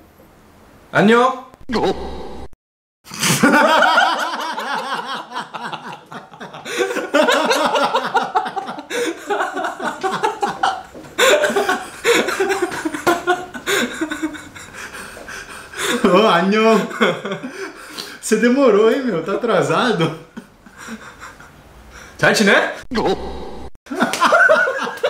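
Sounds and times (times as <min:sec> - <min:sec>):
men laughing: 0:03.1 - 0:17.9, 0:20.0 - 0:22.1, 0:22.9 - 0:25.0.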